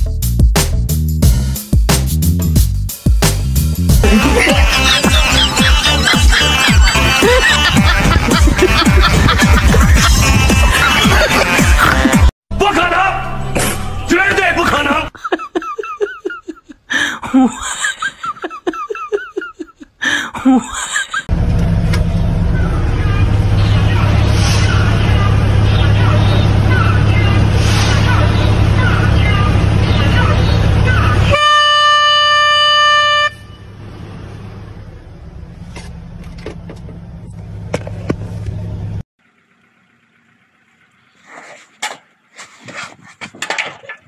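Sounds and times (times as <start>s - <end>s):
vehicle engine rumble: 2.2s - 12.3s, 20.9s - 31.4s, 32.0s - 44.0s
person laughing: 4.0s - 12.3s, 14.6s - 21.3s.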